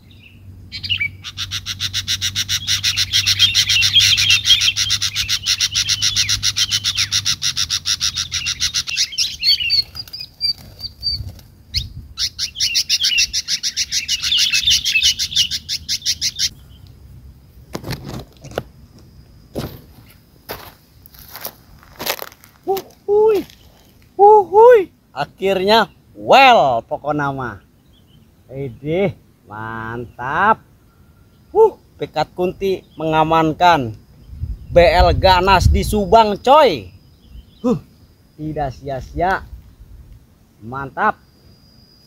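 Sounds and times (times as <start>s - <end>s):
bird chirping: 0.0s - 17.7s, 22.6s - 39.9s
bird wings fluttering: 9.7s - 11.6s.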